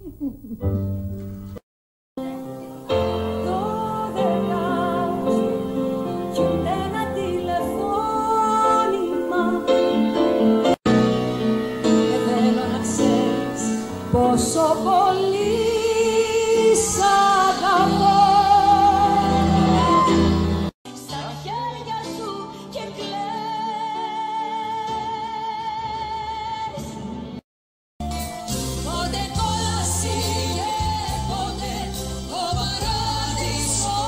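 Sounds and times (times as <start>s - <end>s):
grand piano accompaniment: 2.2s - 20.7s
woman singing: 3.3s - 10.1s, 11.9s - 20.2s, 20.9s - 27.0s, 28.8s - 34.0s.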